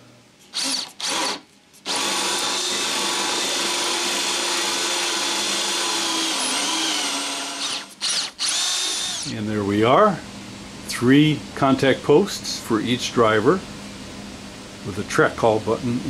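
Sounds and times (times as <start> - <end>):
cordless drill boring into wood: 0.6 - 9.3.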